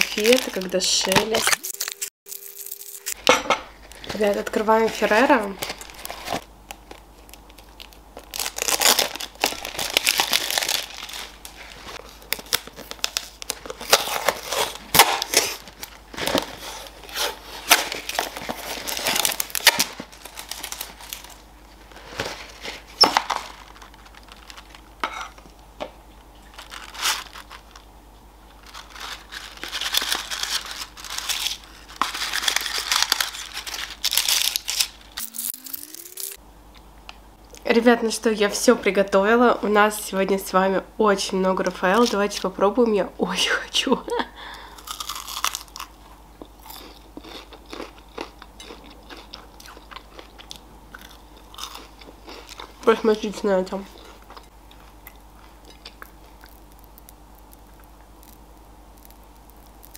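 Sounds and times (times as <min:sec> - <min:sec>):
plastic packaging crinkling: 0:00.0 - 0:24.9, 0:26.4 - 0:27.9, 0:28.6 - 0:36.4.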